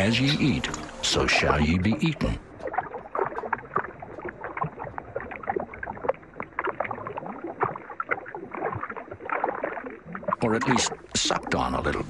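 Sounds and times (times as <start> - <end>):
water splashing and gurgling: 0.0 - 12.0.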